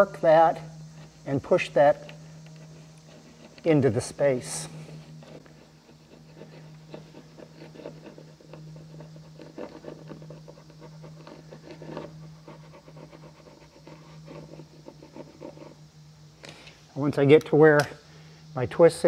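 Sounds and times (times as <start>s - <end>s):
low steady hum: 0.0s - 19.0s
caulking wheel scratchy rubbing: 0.9s - 15.8s.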